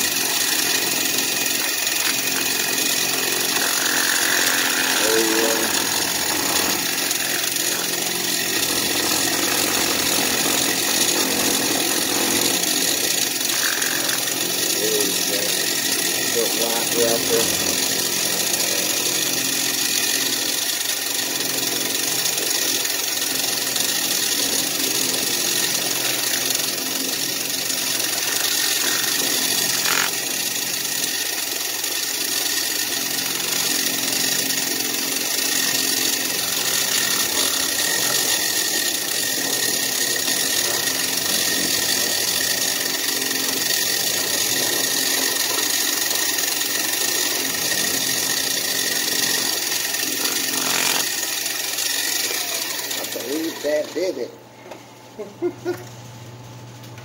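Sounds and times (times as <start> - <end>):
milling machine whine: 0.0 - 57.0.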